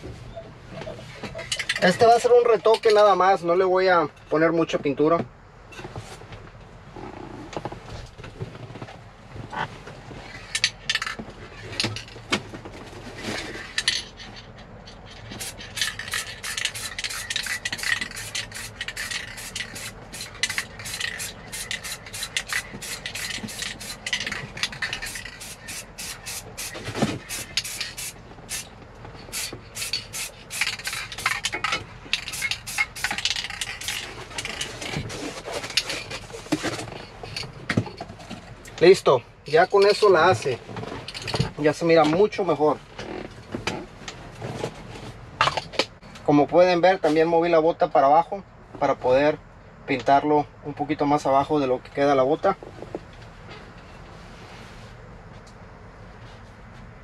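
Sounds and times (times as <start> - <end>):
spray can hissing bursts: 15.4 - 28.7, 29.3 - 31.3, 32.2 - 34.0
cardboard scraping and rubbing: 20.0 - 28.4, 34.0 - 37.2, 54.0 - 55.0.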